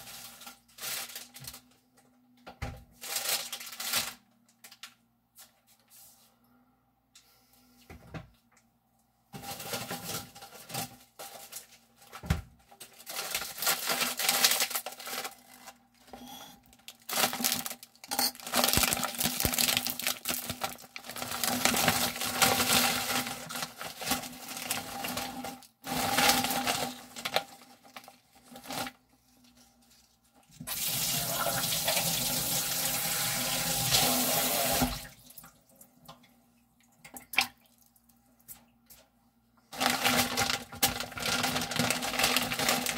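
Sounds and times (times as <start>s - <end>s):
tap water running into sink: 30.6s - 35.1s.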